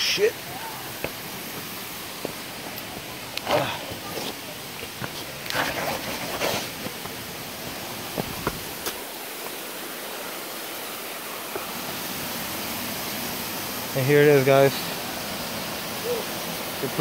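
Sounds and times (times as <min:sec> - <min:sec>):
waterfall and stream rushing: 0:00.0 - 0:17.0
footsteps on rock: 0:01.0 - 0:09.6.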